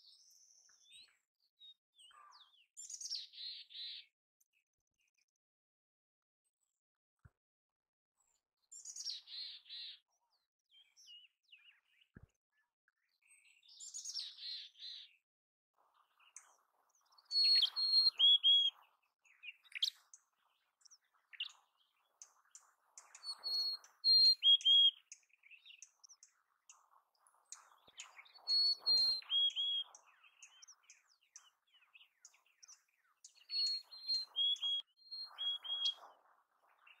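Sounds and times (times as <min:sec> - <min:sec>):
chickadee whistled songs: 0:16.3 - 0:20.2, 0:20.9 - 0:26.8, 0:27.4 - 0:36.2.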